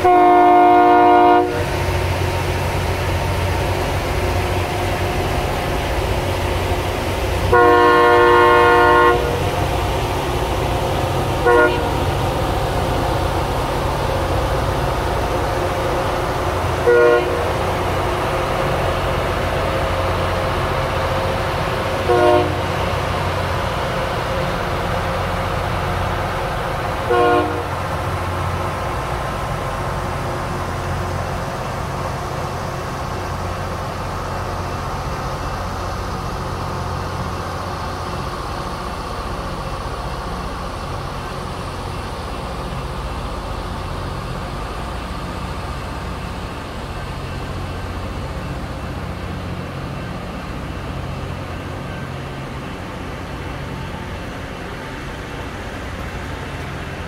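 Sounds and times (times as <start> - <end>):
train horn toots: 0.0 - 1.7, 7.5 - 9.5, 11.4 - 12.0, 16.8 - 17.6, 22.0 - 22.7, 27.1 - 27.7
train rumbling past: 0.0 - 57.0.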